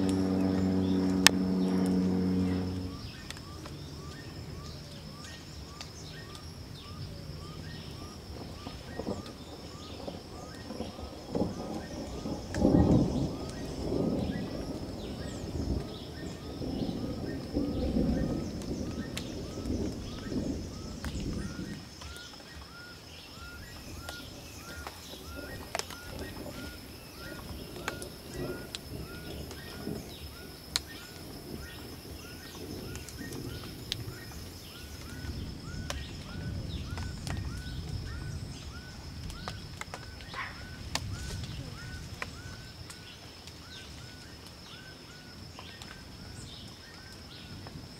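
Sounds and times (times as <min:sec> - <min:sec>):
high-pitched hum: 0:00.0 - 0:03.6
low rumbling noise: 0:00.0 - 0:05.6.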